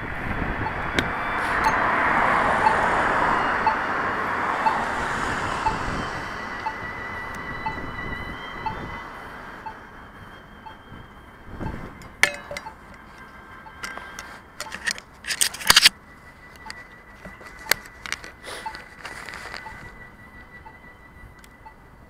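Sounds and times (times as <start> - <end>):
steady high whine: 0.0 - 22.0
sharp clicks and clinks: 12.0 - 15.9
faint short beeps: 13.6 - 22.0.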